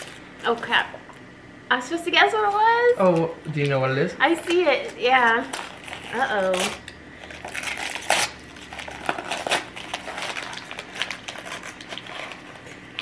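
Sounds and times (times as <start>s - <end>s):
wrapping paper crinkling and tearing: 4.8s - 13.0s.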